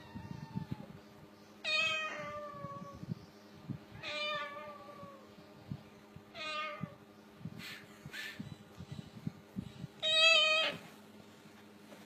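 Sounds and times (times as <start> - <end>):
cockatoo meowing: 10.0 - 10.8.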